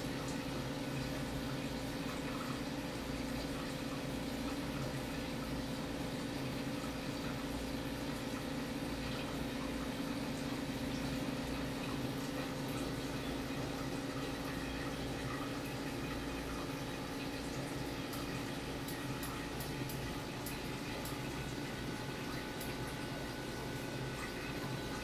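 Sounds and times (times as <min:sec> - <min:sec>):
low pump hum: 0:00.0 - 0:25.0
water trickling and splashing: 0:00.0 - 0:25.0.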